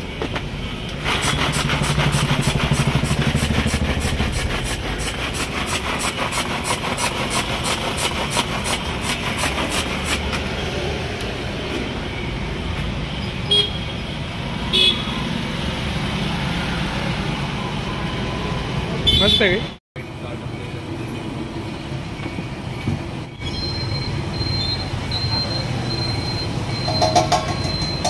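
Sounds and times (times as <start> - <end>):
manual vegetable chopper clattering: 1.0 - 10.2.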